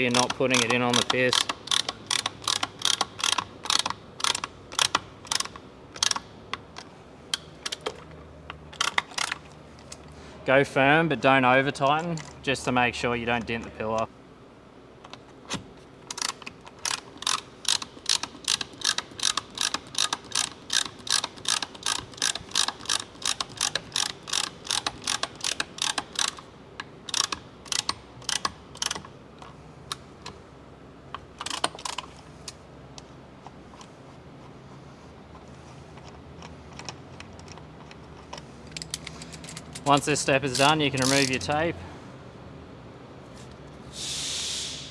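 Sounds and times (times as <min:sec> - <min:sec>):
ratcheting clicks of hand tool: 0:00.0 - 0:10.0, 0:16.0 - 0:30.4, 0:31.1 - 0:33.1, 0:36.0 - 0:41.5.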